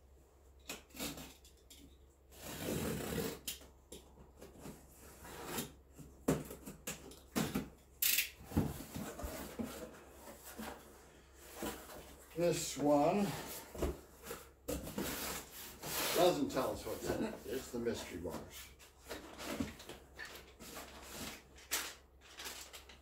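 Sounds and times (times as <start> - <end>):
knife slicing packing tape: 0.7 - 1.4, 2.4 - 3.6
cardboard rustling and scraping: 4.2 - 7.8, 8.4 - 23.0.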